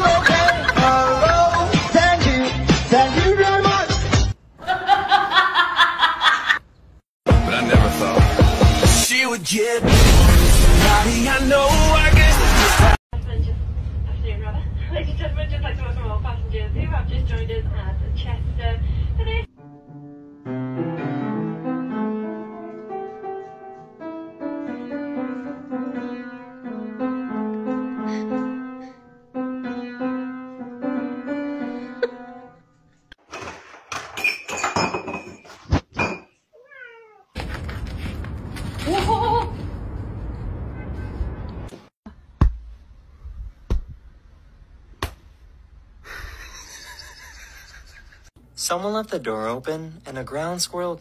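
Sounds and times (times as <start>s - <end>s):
piano melody: 19.5s - 32.6s.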